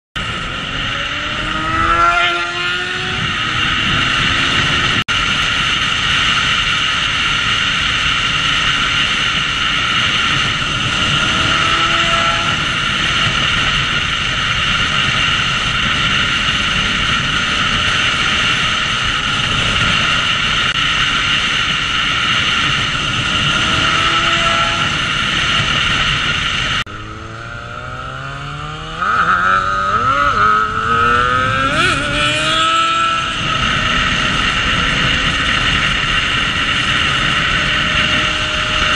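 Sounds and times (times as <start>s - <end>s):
motorcycle engine revving: 0.2s - 38.9s
passing sport bikes: 0.2s - 38.9s
wind rush: 0.2s - 38.9s.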